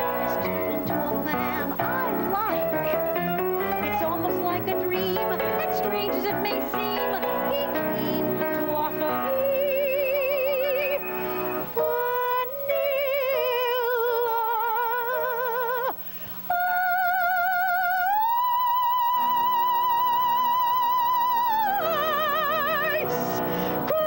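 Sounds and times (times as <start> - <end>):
piano chords: 0.0 - 13.2
woman singing soprano with vibrato: 0.0 - 24.0.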